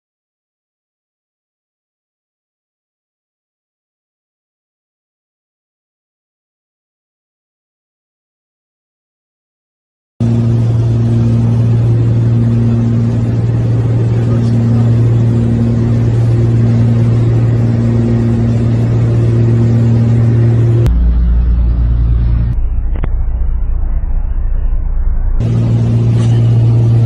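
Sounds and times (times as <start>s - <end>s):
light aircraft engine droning: 10.2s - 27.0s.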